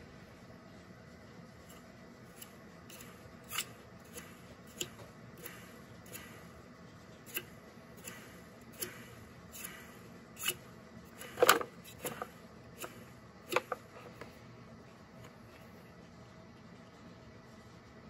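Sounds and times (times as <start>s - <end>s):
motor parts clicking and knocking: 1.7s - 14.3s
parts clattering: 8.0s - 14.4s.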